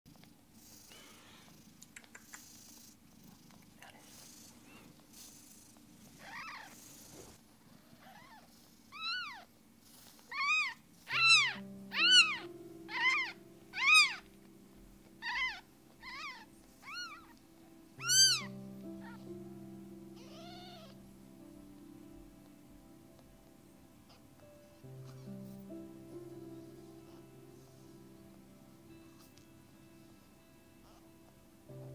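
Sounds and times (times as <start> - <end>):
soft music of held notes: 0.1 - 31.9
kittens meowing: 6.2 - 6.8, 8.0 - 9.5, 10.3 - 14.3, 15.2 - 17.4, 18.0 - 19.3, 20.2 - 21.0.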